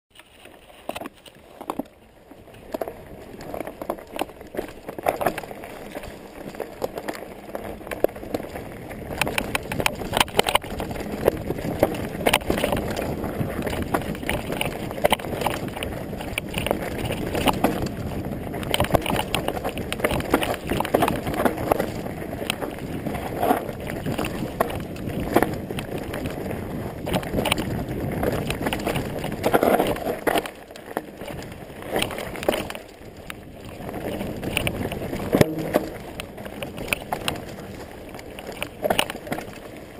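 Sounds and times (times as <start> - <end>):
bike rattling: 0.1 - 39.9
bike tyres rumbling over dirt: 0.2 - 39.9.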